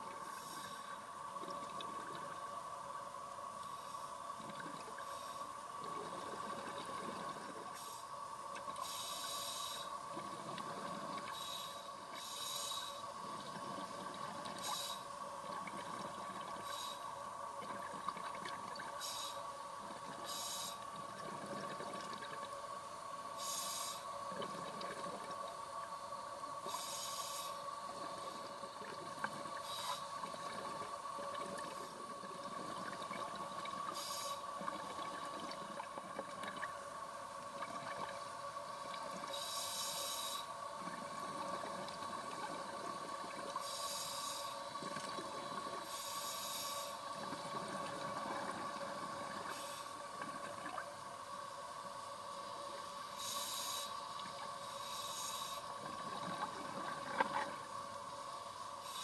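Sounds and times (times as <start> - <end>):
regulator breathing hiss: 0.2 - 1.2, 5.0 - 5.6, 7.7 - 10.1, 10.8 - 13.4, 14.6 - 15.2, 16.5 - 17.2, 19.0 - 19.6, 20.2 - 21.0, 23.3 - 24.2, 26.6 - 28.5, 29.5 - 30.3, 33.8 - 34.7, 39.2 - 40.7, 43.5 - 44.9, 45.7 - 47.2, 49.4 - 50.1, 51.4 - 55.9, 58.2 - 59.0.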